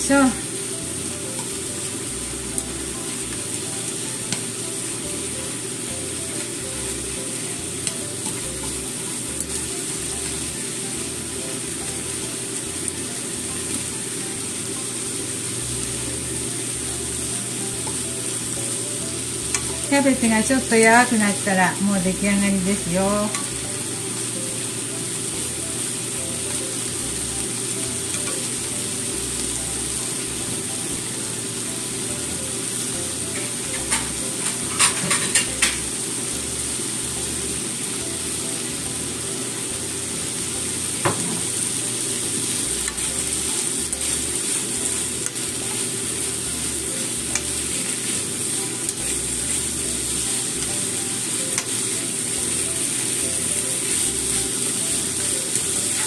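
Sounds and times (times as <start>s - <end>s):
food sizzling in a frying pan: 0.0s - 56.0s.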